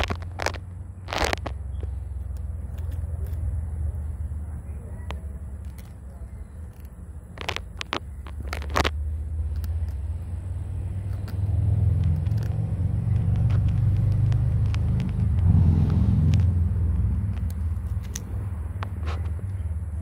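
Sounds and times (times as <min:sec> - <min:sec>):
motor vehicle passing: 0:00.0 - 0:20.0.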